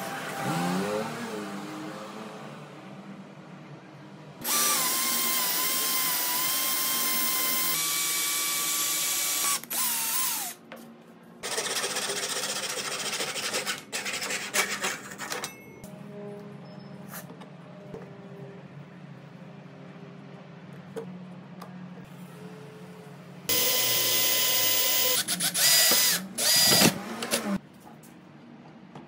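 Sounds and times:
cordless drill boring into wood: 4.4 - 10.6, 23.5 - 27.4.

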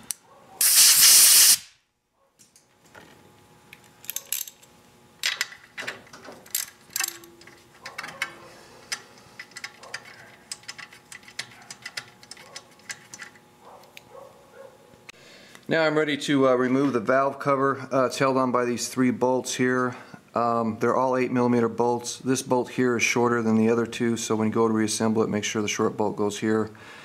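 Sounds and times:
compressed air blast: 0.6 - 1.8.

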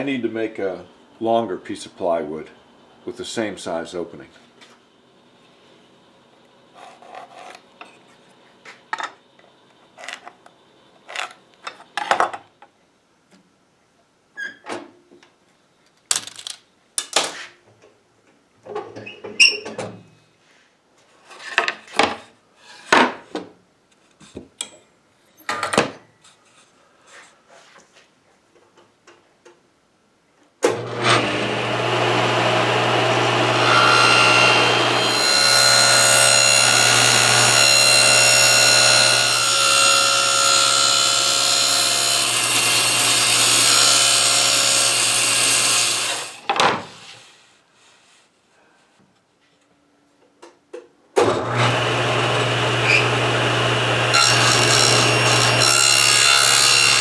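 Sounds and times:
table saw running: 30.7 - 46.4, 51.4 - 57.0.

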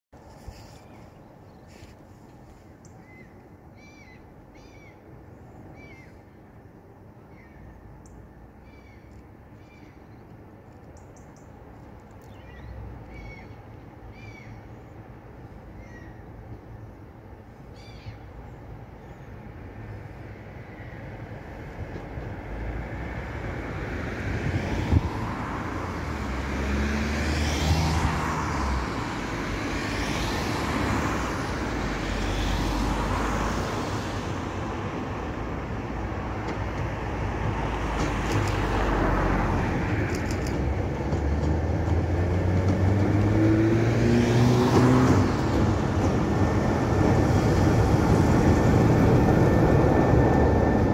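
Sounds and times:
diesel locomotive engine throbbing: 45.2 - 50.9.

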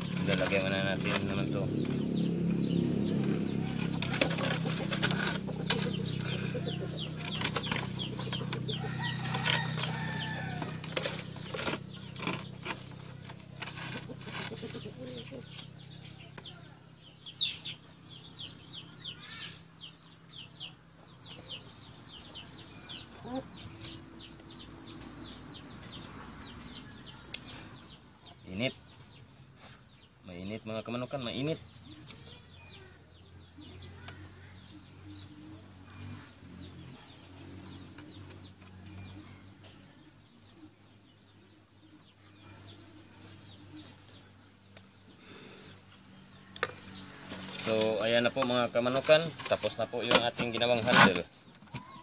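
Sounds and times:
chickens clucking and fluttering: 3.3 - 15.7
clicks and rustling: 7.0 - 14.9.

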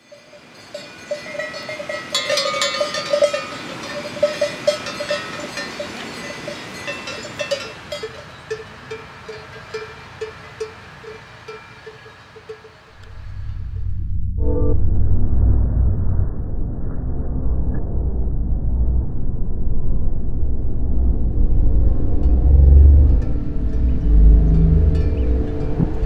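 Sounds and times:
cowbells clanking: 0.0 - 13.1, 23.5 - 26.0
low rumble: 13.0 - 26.0.

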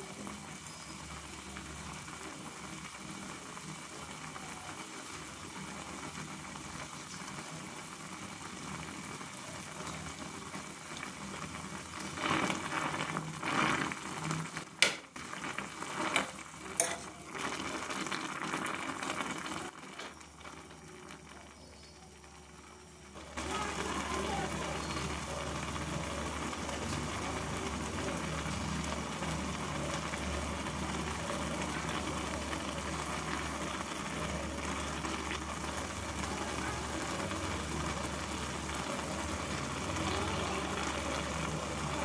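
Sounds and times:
water boiling: 0.0 - 42.0
spoon stirring and splashing: 16.0 - 17.5
spoon clinking against pan: 16.8 - 17.2.

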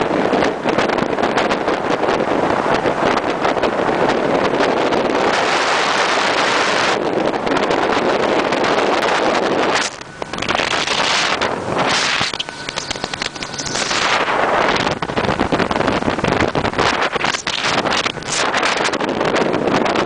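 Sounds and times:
boat motor: 0.0 - 20.0
wind buffeting microphone: 0.0 - 20.0
rushing water: 8.5 - 19.7.

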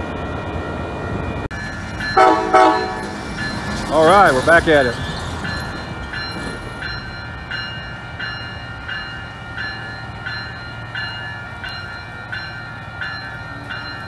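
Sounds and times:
diesel locomotive rumble: 0.0 - 14.0
crossing warning bell ringing: 0.6 - 14.0.

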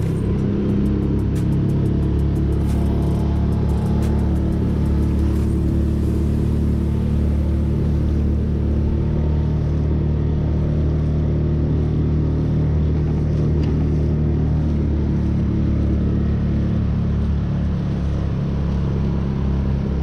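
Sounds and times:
small outboard motor running: 0.0 - 20.0.

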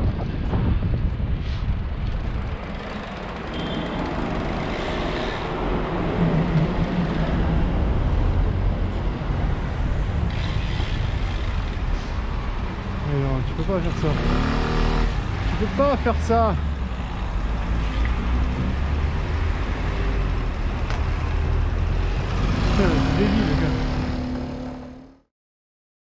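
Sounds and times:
wind rumbling on microphone: 0.0 - 13.0
city road traffic: 0.0 - 25.3
car engines running close by: 0.2 - 25.2.

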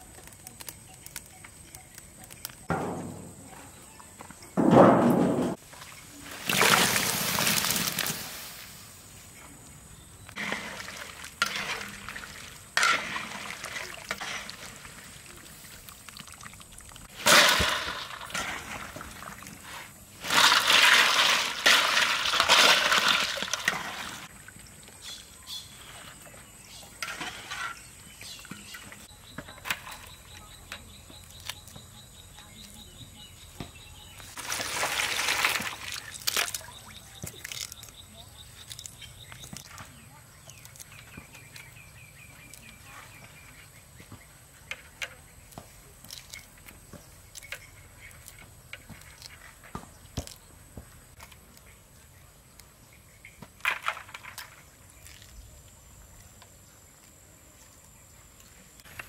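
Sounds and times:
water splashing and pouring: 6.2 - 8.6, 10.4 - 19.6, 20.2 - 24.6, 34.4 - 37.8
sharp splash: 6.4 - 8.6.

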